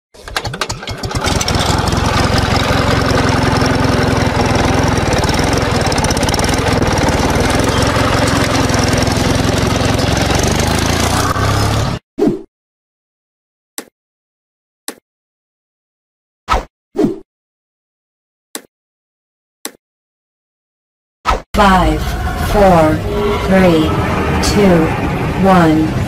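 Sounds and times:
rumbling drone with flutter: 0:00.2 - 0:12.0, 0:21.6 - 0:26.0.

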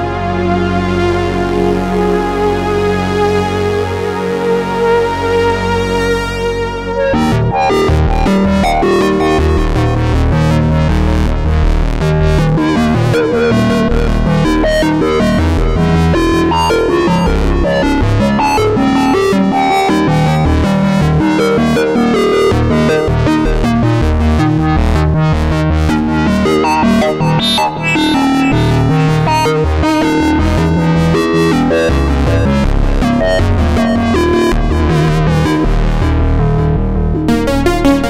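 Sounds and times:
synthesizer sequenced pattern: 0:06.8 - 0:38.0.

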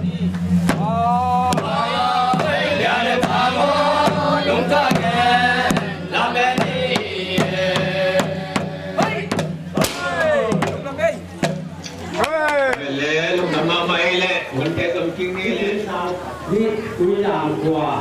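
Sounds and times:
steady low hum: 0:00.0 - 0:12.2
regular percussive beats: 0:00.0 - 0:12.8
chant sung in a winding melody: 0:00.9 - 0:09.4.

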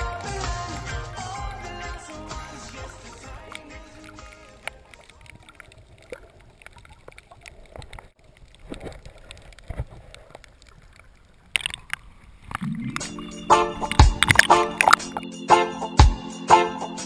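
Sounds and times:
underwater gurgling: 0:00.0 - 0:15.2
water splash and sloshing: 0:01.9 - 0:15.2
small knocks underwater: 0:13.8 - 0:15.2.

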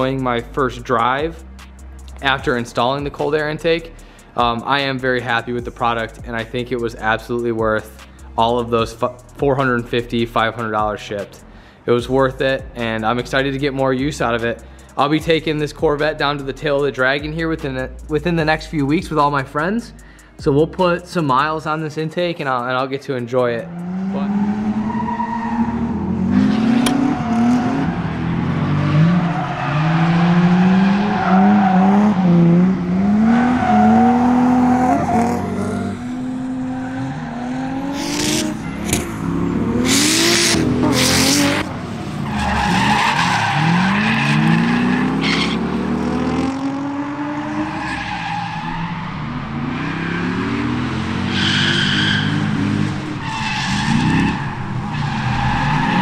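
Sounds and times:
car engine revving: 0:23.6 - 0:56.0
tyres squealing on pavement: 0:24.4 - 0:28.0, 0:29.2 - 0:32.3, 0:33.2 - 0:35.9, 0:42.2 - 0:45.6, 0:47.7 - 0:50.6, 0:51.2 - 0:56.0.

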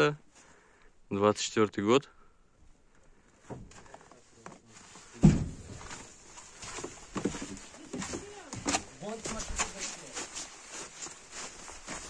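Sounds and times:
footsteps crunching in snow: 0:04.2 - 0:12.0
heavy thump: 0:05.2 - 0:05.9.

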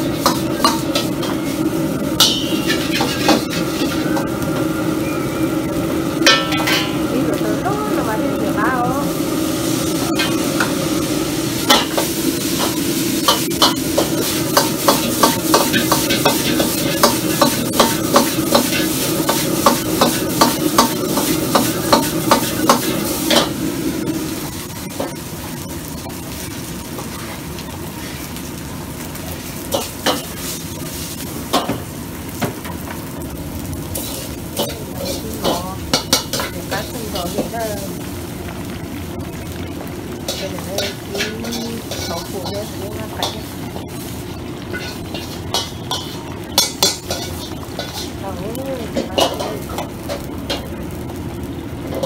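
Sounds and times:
rice sizzling: 0:00.0 - 0:52.0
metal ladle clanking against wok: 0:02.2 - 0:04.3, 0:06.2 - 0:07.0, 0:40.3 - 0:43.4, 0:44.7 - 0:48.2.

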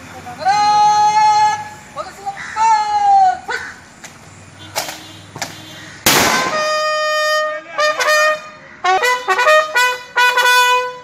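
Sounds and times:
rifle shot: 0:06.1 - 0:06.7
brass band fanfare: 0:06.4 - 0:11.0.

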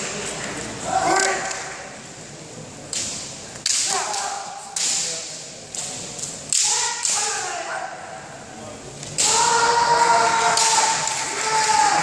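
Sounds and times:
people shouting: 0:00.8 - 0:01.9, 0:03.7 - 0:04.8, 0:06.5 - 0:08.2, 0:09.2 - 0:12.0
bamboo swords clacking: 0:02.9 - 0:07.7, 0:09.0 - 0:12.0.

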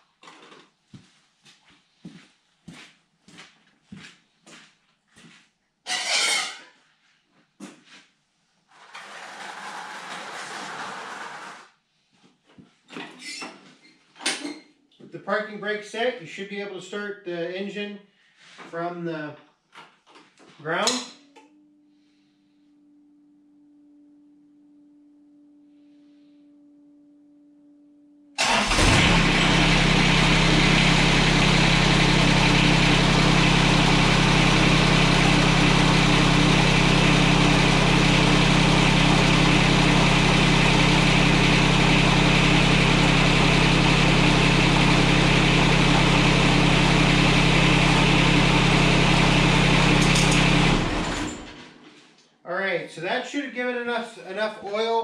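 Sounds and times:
diesel tractor engine running: 0:28.4 - 0:51.6.

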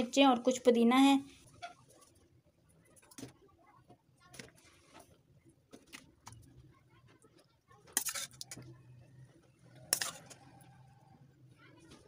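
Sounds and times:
steel spoon scraping a pan: 0:07.9 - 0:08.6, 0:09.7 - 0:10.8.

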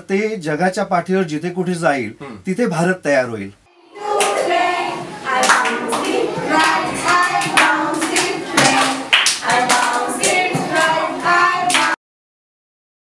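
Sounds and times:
children and teacher singing: 0:03.7 - 0:12.0
people clapping: 0:04.0 - 0:12.0.

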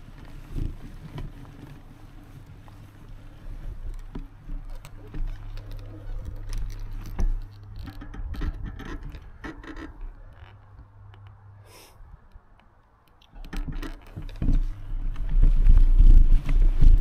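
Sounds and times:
bike clicks and rattles: 0:00.0 - 0:11.5, 0:12.2 - 0:17.0
rumble of bike tyres and frame: 0:00.0 - 0:17.0
wind on microphone: 0:14.4 - 0:17.0.

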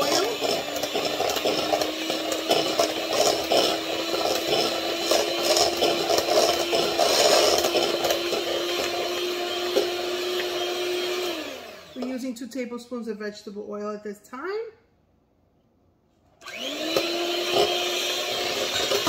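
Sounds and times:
electric mixer churning batter: 0:00.0 - 0:12.3, 0:16.4 - 0:19.0.

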